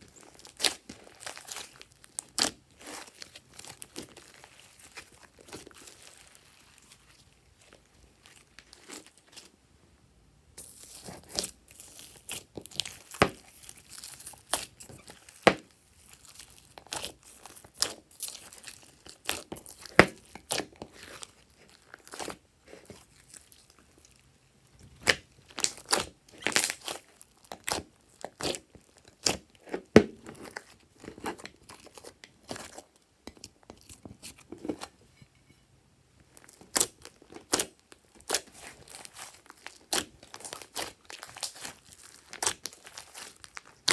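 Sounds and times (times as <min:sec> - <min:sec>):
slime squished by hand: 0:24.9 - 0:32.8, 0:36.4 - 0:43.9.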